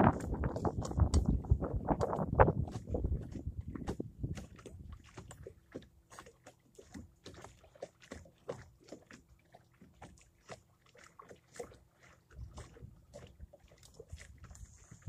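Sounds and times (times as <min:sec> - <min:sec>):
small waves lapping against boat hull: 0:00.0 - 0:15.0.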